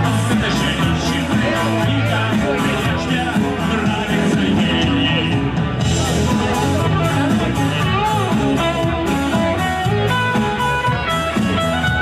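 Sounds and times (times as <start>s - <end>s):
guitars: 0.0s - 12.0s
live rock band playing: 0.0s - 12.0s.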